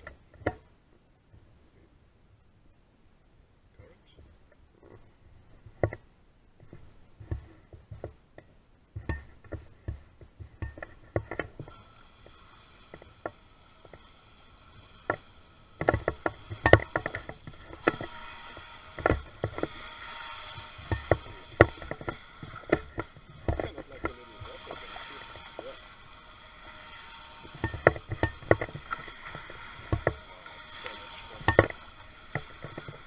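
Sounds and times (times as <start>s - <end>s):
sharp knocks and clicks: 0.0s - 0.7s, 4.2s - 33.0s
electric boat motor whining: 10.7s - 33.0s.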